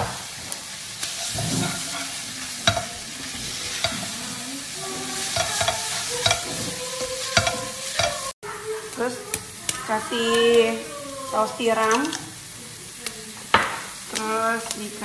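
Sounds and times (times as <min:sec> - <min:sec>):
noodles and shrimp sizzling: 0:00.0 - 0:15.0
spatula clacking against pan: 0:01.0 - 0:04.3, 0:05.1 - 0:08.4.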